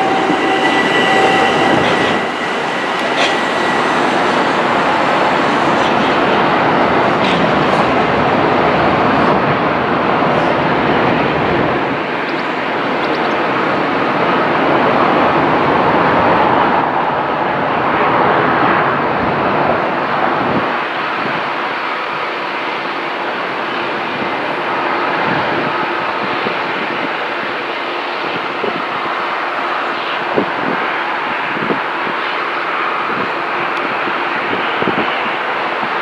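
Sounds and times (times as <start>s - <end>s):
deep rumble: 0.0s - 11.8s
jet aircraft noise: 0.0s - 36.0s
passing train rushing: 0.0s - 36.0s.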